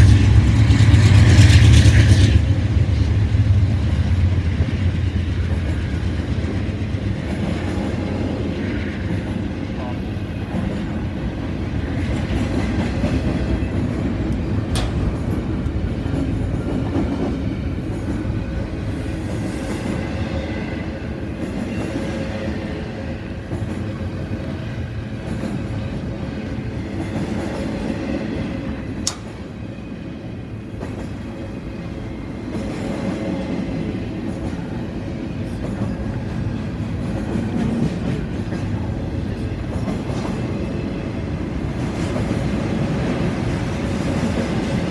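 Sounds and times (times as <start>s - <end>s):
train wheels rumbling on rails: 0.0s - 44.9s
sharp click: 29.0s - 29.4s.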